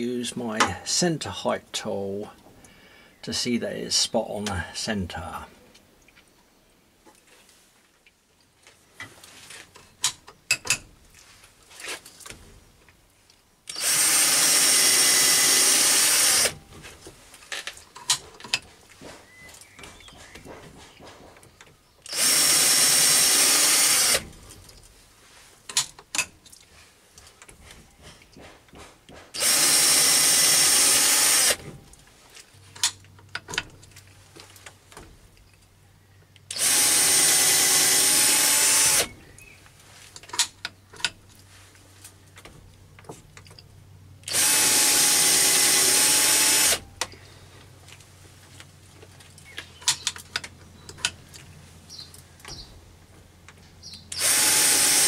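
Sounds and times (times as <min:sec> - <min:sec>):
electric drill drilling: 0:13.7 - 0:16.6, 0:22.1 - 0:24.3, 0:29.4 - 0:31.6, 0:36.5 - 0:39.1, 0:44.3 - 0:46.8, 0:54.1 - 0:55.0.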